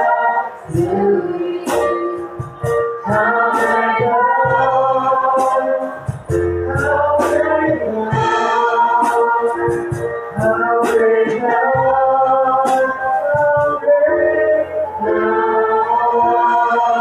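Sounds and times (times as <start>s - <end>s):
digital piano: 0.0s - 17.0s
group singing a hymn: 0.0s - 17.0s.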